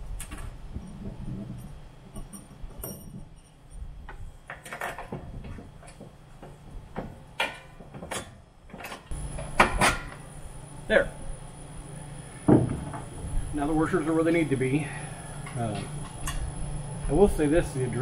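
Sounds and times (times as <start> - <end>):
metal parts clicking and knocking: 1.5 - 3.8.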